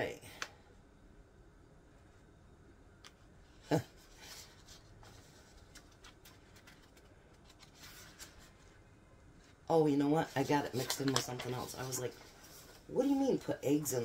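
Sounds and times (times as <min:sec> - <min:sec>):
paper rustling: 0:04.0 - 0:08.8, 0:09.4 - 0:14.0.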